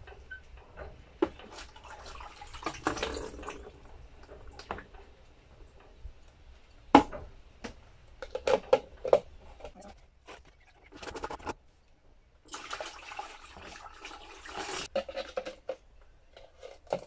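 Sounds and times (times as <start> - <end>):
liquid splashing into bucket: 1.3 - 3.8, 12.5 - 15.3.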